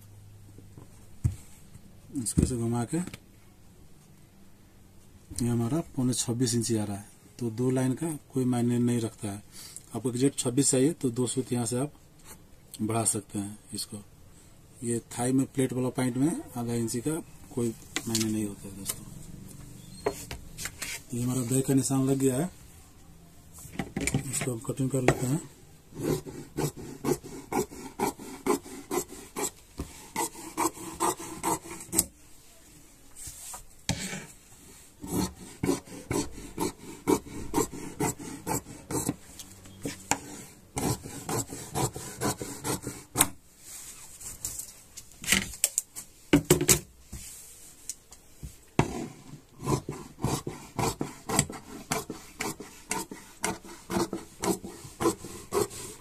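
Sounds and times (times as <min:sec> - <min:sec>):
shears cutting fabric: 0:26.0 - 0:32.1, 0:35.0 - 0:39.2.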